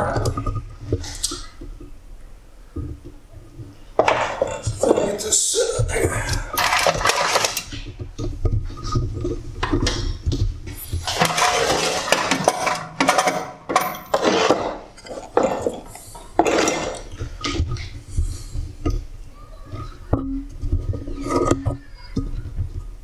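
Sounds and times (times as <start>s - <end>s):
objects clinking and knocking: 4.0s - 5.2s, 6.0s - 18.0s.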